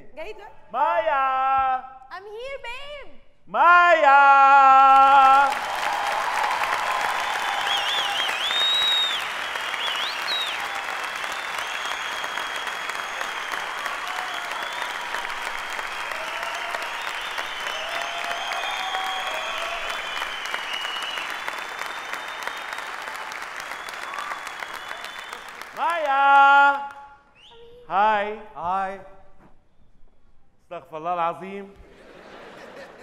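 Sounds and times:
audience applauding: 0:05.0 - 0:27.0.

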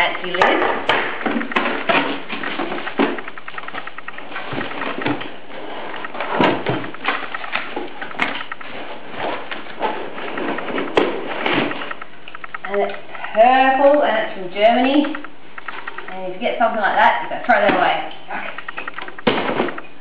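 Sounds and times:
sharp clicks: 0:00.0 - 0:05.3, 0:10.3 - 0:16.4, 0:18.4 - 0:20.0
plastic and cardboard rustling: 0:00.0 - 0:20.0
loud knocks: 0:18.6 - 0:20.0.

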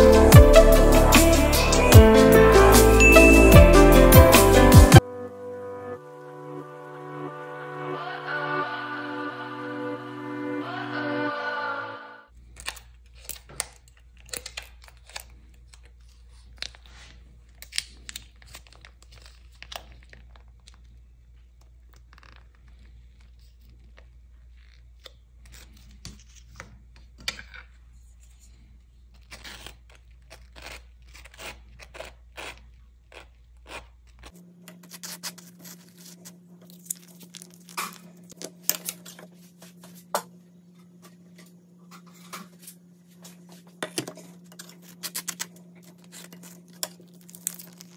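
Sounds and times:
steady low hum: 0:34.2 - 0:47.9
dry toast crackling and crunching: 0:35.0 - 0:39.0, 0:44.6 - 0:47.9.

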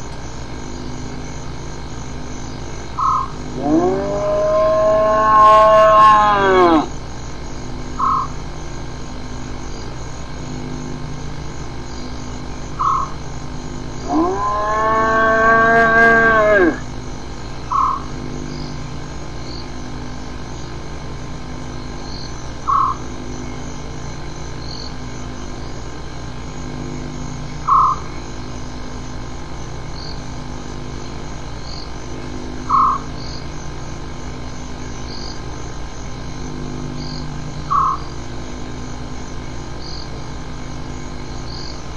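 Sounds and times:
film hiss and hum: 0:00.0 - 0:41.9
hyena long drawn-out call: 0:03.0 - 0:07.0, 0:14.0 - 0:16.9.

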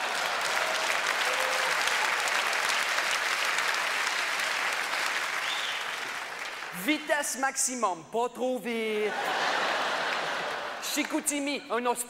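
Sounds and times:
audience applauding: 0:00.0 - 0:07.1, 0:09.3 - 0:11.2.

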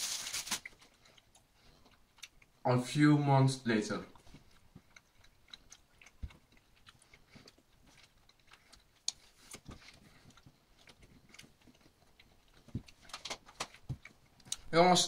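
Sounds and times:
faint closed-mouth chewing: 0:00.6 - 0:02.6, 0:04.0 - 0:14.7.

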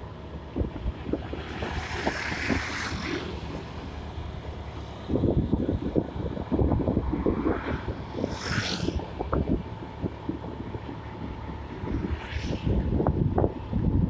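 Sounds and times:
moving vehicle road noise: 0:00.0 - 0:14.0
wind buffeting microphone: 0:00.0 - 0:14.0
passing vehicle hiss: 0:01.1 - 0:05.1, 0:07.0 - 0:09.5, 0:11.7 - 0:13.2.

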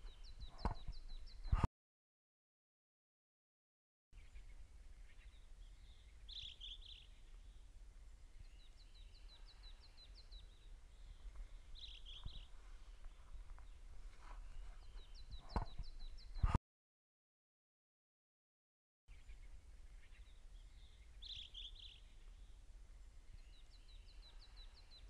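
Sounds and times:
songbirds warbling and chirping: 0:00.0 - 0:01.6, 0:04.2 - 0:16.5, 0:19.1 - 0:25.0.

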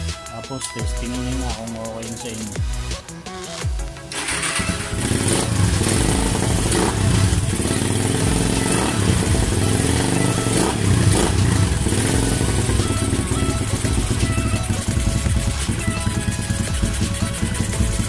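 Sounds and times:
motorcycle engine revving: 0:04.0 - 0:18.0.

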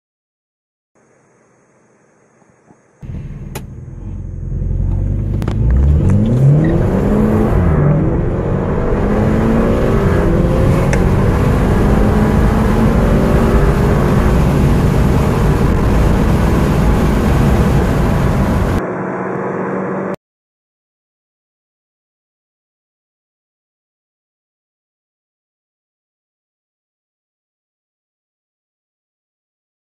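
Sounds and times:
car engines accelerating: 0:03.0 - 0:20.2.

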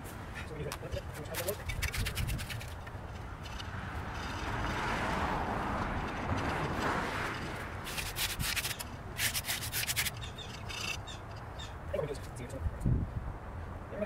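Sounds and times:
rubbing in wet concrete: 0:01.2 - 0:02.9, 0:06.3 - 0:11.0
trowel scraping: 0:01.3 - 0:05.1, 0:05.8 - 0:11.2.

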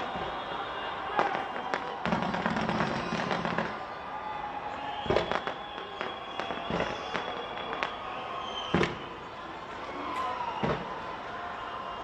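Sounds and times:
fireworks bangs and pops: 0:01.1 - 0:03.8, 0:05.0 - 0:09.2, 0:10.6 - 0:11.0.

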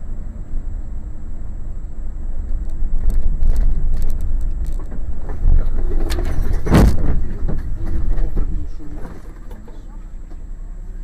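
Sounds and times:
road and engine rumble: 0:00.0 - 0:11.0
rattles and knocks: 0:02.6 - 0:10.4.

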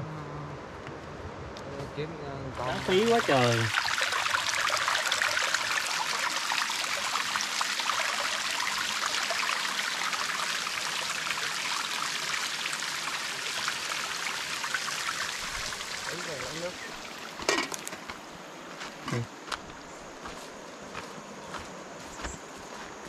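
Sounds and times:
stream water trickling over rock: 0:02.6 - 0:19.5.

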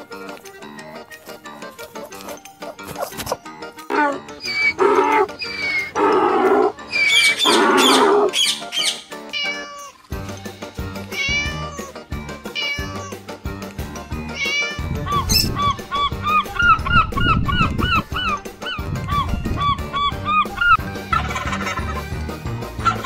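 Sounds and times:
background music: 0:00.0 - 0:23.0
high gliding animal calls: 0:04.0 - 0:09.1.

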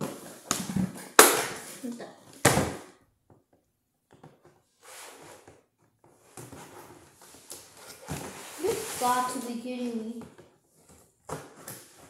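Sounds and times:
packaging rustling and scraping: 0:04.6 - 0:10.0.

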